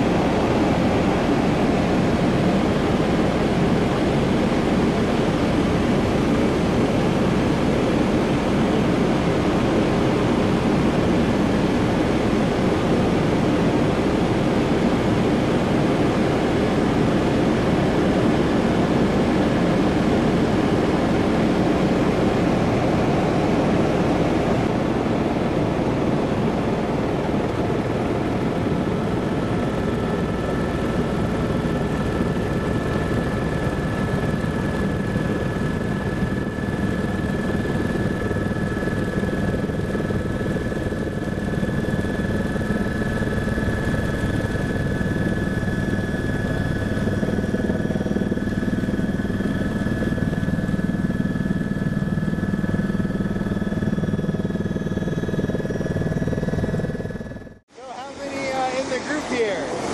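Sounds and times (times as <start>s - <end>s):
helicopter engine and rotor drone: 0.0s - 59.9s
helicopter turbine whine: 0.0s - 59.9s.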